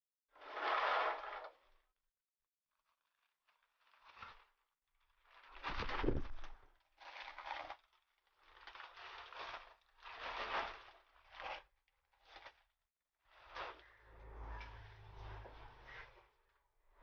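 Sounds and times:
plastic trash bag rustling: 5.3s - 11.4s.

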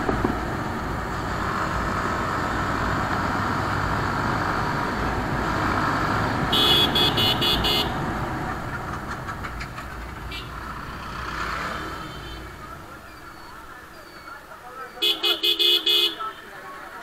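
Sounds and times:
motorcycle engine: 0.0s - 13.9s
vehicle horn beeps: 6.5s - 8.0s, 12.0s - 12.6s, 15.0s - 16.5s.

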